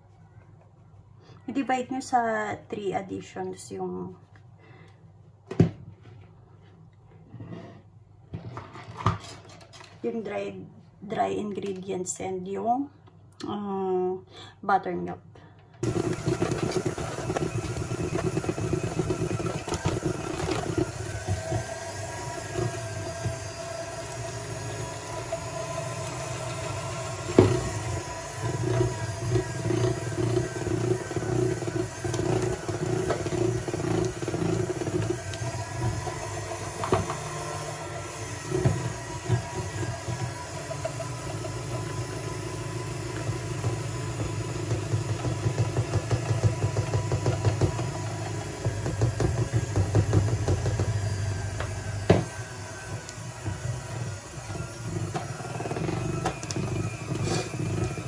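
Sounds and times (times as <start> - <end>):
electric mixer running: 15.8 - 58.0.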